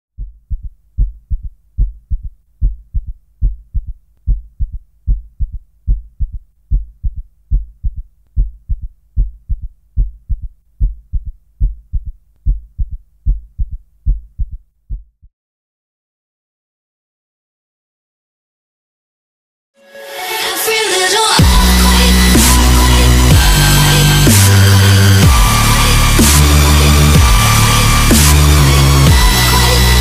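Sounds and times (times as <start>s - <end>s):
heartbeat thumps: 0.2s - 15.3s, 21.4s - 22.4s, 23.3s - 24.4s, 25.1s - 26.2s, 27.1s - 28.2s, 29.1s - 29.4s.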